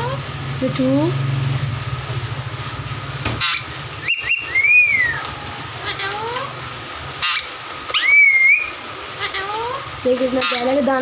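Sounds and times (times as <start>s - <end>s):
parakeet squawks: 3.3s - 6.6s, 7.2s - 10.9s
parakeet whistled call: 3.4s - 5.2s, 7.2s - 9.5s.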